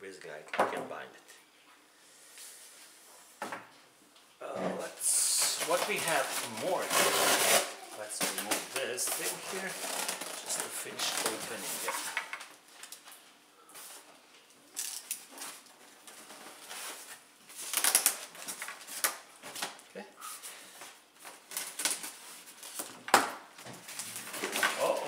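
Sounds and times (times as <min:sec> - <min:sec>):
packaging rustling and clicking: 0:05.4 - 0:13.2, 0:14.8 - 0:19.8, 0:21.2 - 0:25.0.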